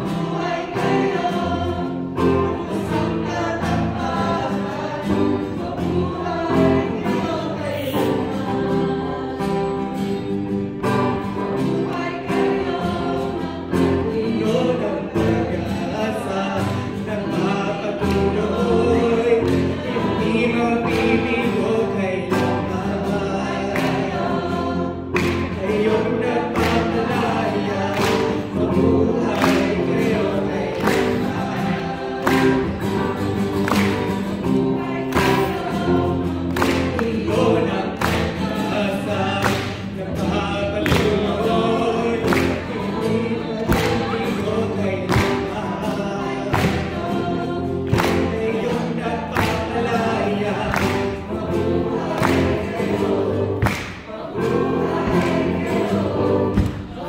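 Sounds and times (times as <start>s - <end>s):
group singing to a beat: 0.0s - 57.0s.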